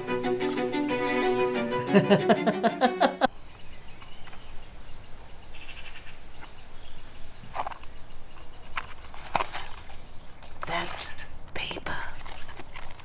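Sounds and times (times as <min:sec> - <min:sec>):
loud music: 0:00.0 - 0:03.3
birds chirping: 0:00.0 - 0:12.0
people laughing: 0:01.7 - 0:03.3.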